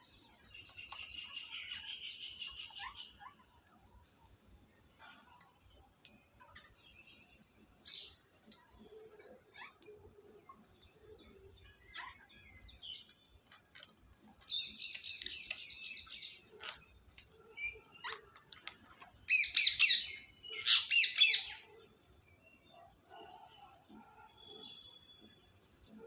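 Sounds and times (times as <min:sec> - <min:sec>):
faint clicks: 0:03.6 - 0:04.3.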